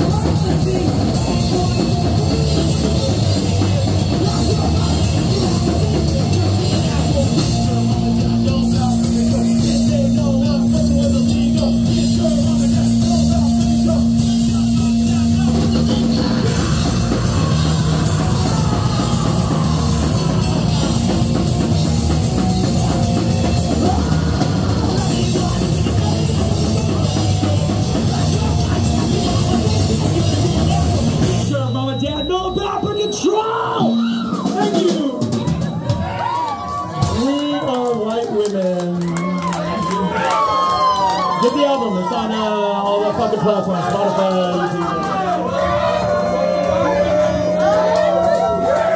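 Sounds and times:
live rock band playing: 0.0s - 48.9s.

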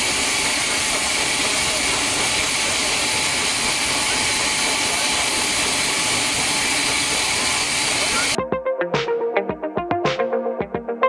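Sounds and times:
steam hissing from locomotive: 0.0s - 8.4s.

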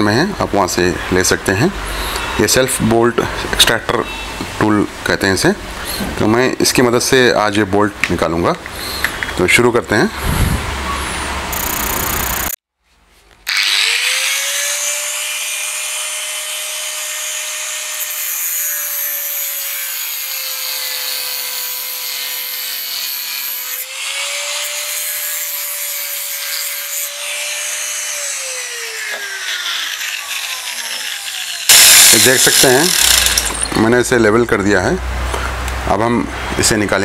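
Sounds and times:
angle grinder grinding metal: 13.5s - 34.0s.

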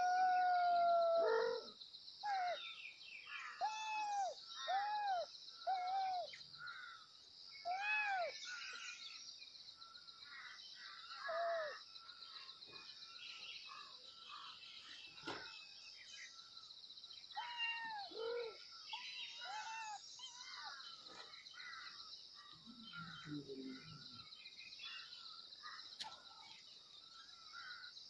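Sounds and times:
kittens meowing: 7.7s - 8.3s, 17.4s - 18.6s, 19.3s - 20.6s.

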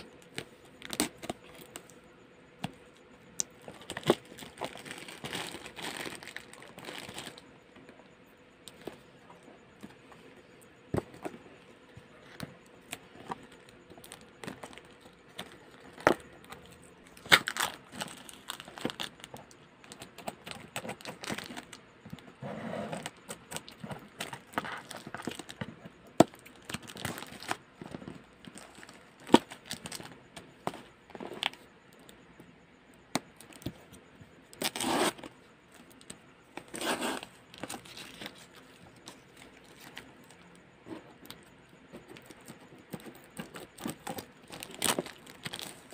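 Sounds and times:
plastic wrapping crinkling: 3.6s - 7.4s, 12.9s - 21.8s, 23.5s - 30.2s, 42.2s - 45.9s.

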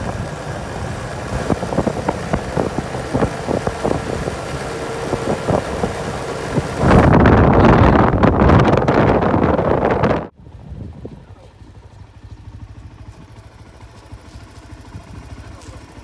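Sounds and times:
wind buffeting on microphone: 0.0s - 11.4s
vehicle engine driving: 0.0s - 16.0s.

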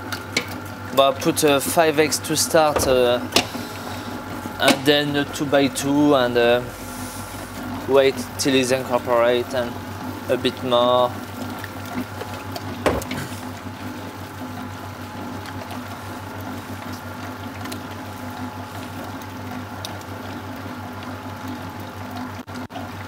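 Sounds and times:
mixer motor humming: 0.5s - 23.0s
short knock: 2.8s - 3.6s.

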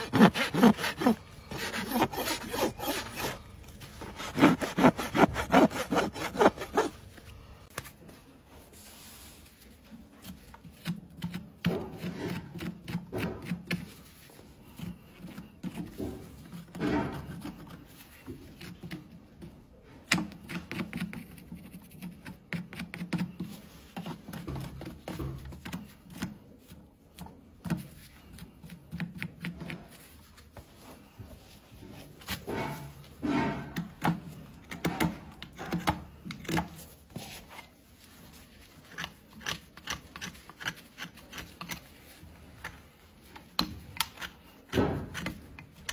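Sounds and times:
scraping hoof: 0.0s - 7.0s, 32.0s - 34.0s.

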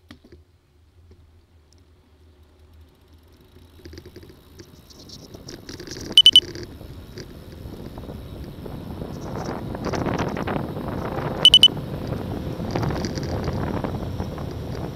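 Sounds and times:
wind and road noise: 0.1s - 14.9s
bicycle rattling clicks: 2.6s - 14.9s
high electronic beeps: 6.2s - 6.4s, 11.4s - 11.7s.

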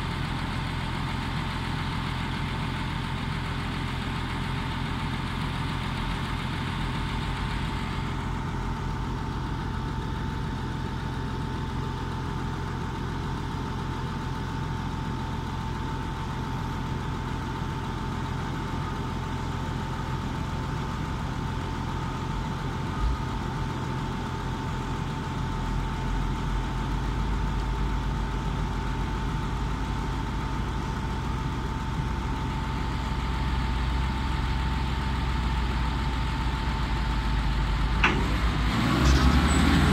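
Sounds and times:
diesel engine idling: 0.0s - 39.9s.

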